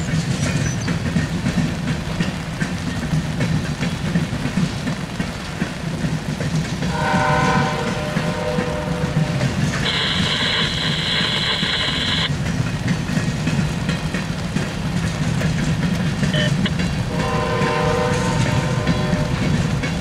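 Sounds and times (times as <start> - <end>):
train wheels rumbling on rail: 0.0 - 20.0
chord of steady tones: 6.9 - 12.3.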